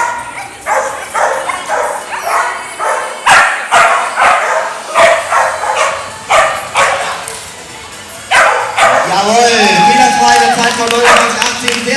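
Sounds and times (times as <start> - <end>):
dog barking: 0.0 - 7.2, 8.3 - 9.2, 11.0 - 11.4.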